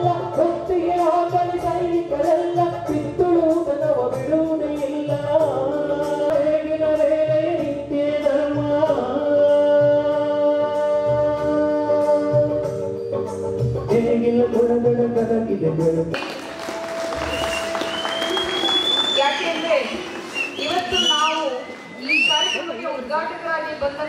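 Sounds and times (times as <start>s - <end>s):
man singing into microphone: 0.0s - 12.8s, 13.8s - 16.2s.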